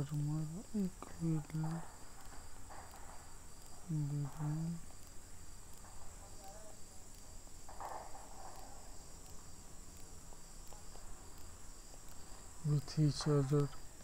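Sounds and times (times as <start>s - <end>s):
low voice: 0.0s - 1.9s, 3.9s - 4.8s, 12.6s - 13.8s
crickets chirping: 0.0s - 14.0s.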